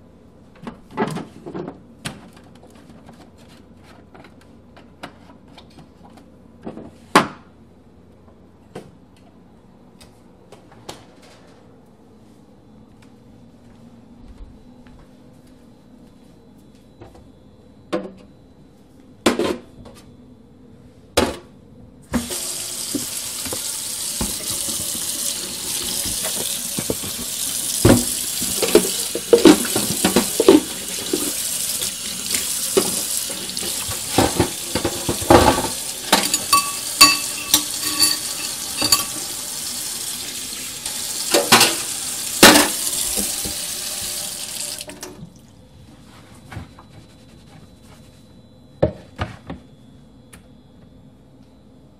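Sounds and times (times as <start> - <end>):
knocks and clinks in a sink: 22.2 - 39.4, 41.2 - 43.7
tap running into a sink: 22.2 - 39.5, 40.9 - 45.2.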